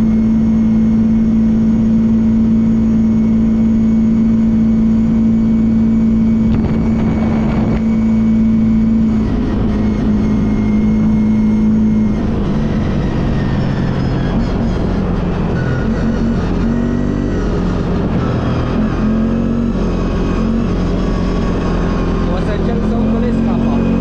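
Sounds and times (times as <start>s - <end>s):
atv engine at cruising throttle: 0.0s - 24.0s.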